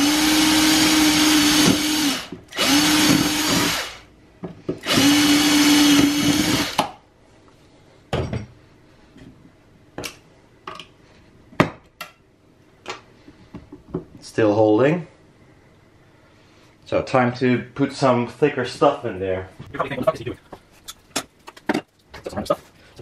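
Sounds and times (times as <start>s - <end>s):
cordless drill grinding into metal: 0.0s - 4.0s, 4.8s - 6.8s.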